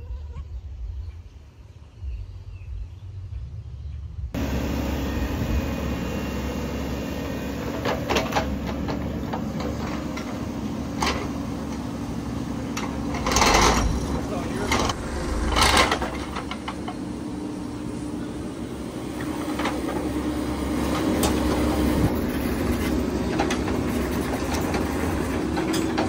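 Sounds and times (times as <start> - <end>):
excavator diesel engine running: 4.4 - 26.0
low rumble: 13.8 - 16.6.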